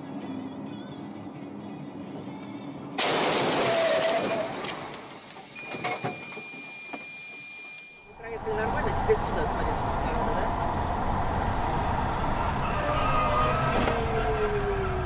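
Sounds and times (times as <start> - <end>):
windshield shattering: 3.0 - 7.0.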